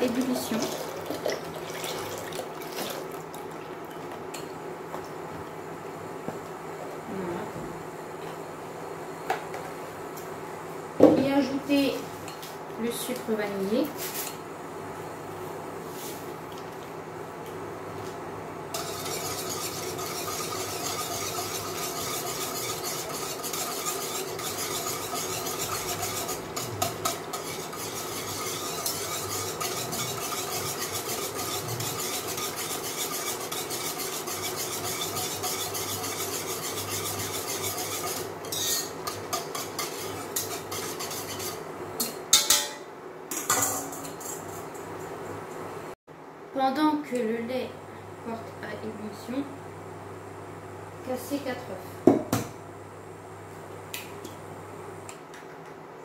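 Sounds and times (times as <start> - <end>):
wire whisk scraping a saucepan: 18.7 - 41.6
whisk knocking on metal bowl: 18.8 - 41.5.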